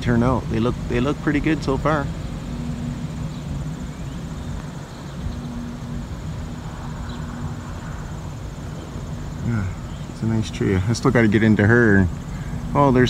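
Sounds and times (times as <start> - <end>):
held tone: 0.0 - 9.8
high-pitched insect trill: 0.0 - 13.0
low mechanical hum: 0.0 - 13.0.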